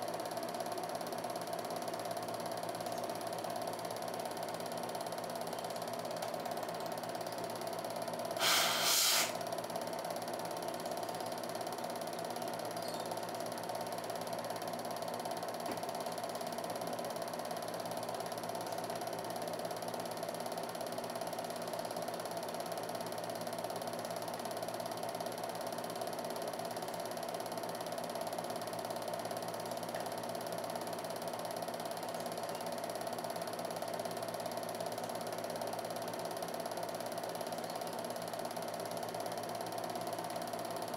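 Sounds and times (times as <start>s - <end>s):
film projector whirring and clattering: 0.0s - 40.9s
short burst of hiss: 8.4s - 9.4s.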